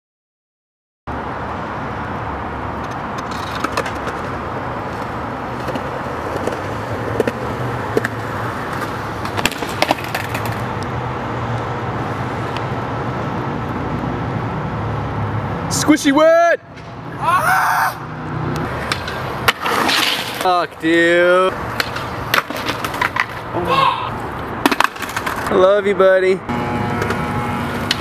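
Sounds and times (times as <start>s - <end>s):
skateboard rolling on concrete: 1.9s - 14.8s, 18.1s - 28.0s
skateboard clacks: 2.8s - 10.9s, 18.6s - 21.0s, 21.6s - 23.5s, 24.6s - 25.6s.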